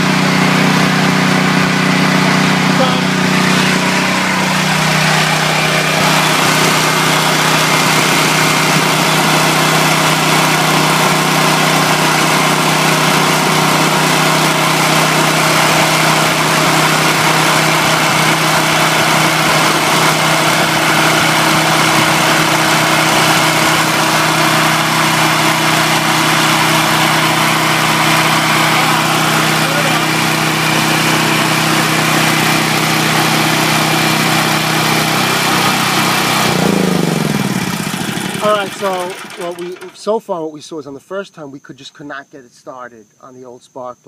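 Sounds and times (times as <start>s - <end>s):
generator engine humming: 0.0s - 40.4s.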